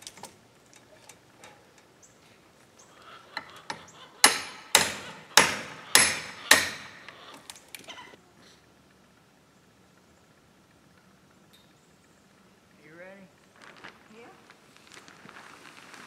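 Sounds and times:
hammer striking: 3.7 - 7.2.

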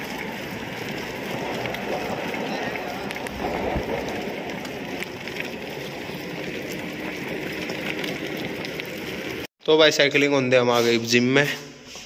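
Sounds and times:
wind buffeting microphone: 0.1 - 8.8.

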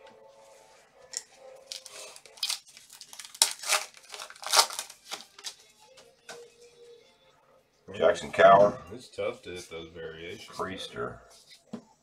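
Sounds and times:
foil wrapper crinkling and tearing: 1.7 - 5.7.

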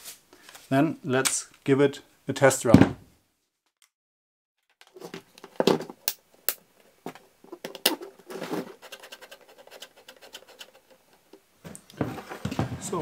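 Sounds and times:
scraping: 7.1 - 13.0.

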